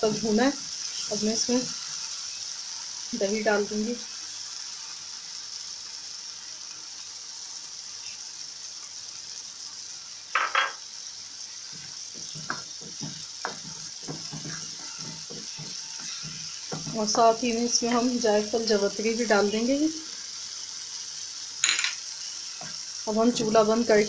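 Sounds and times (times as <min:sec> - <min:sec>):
masala sizzling in hot oil: 0:00.0 - 0:24.0
spoon scraping a pan: 0:11.8 - 0:17.4.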